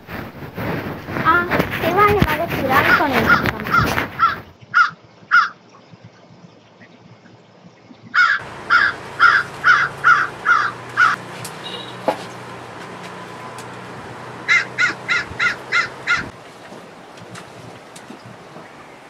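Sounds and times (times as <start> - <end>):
crow cawing: 2.9 - 5.6, 8.2 - 12.1, 14.4 - 16.3.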